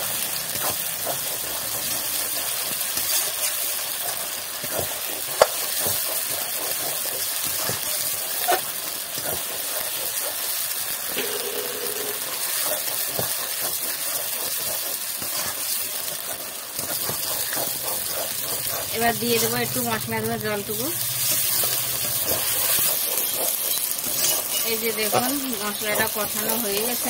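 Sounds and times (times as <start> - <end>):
paste sizzling in hot oil: 0.0 - 27.0
metal spatula scraping pan: 21.0 - 27.0.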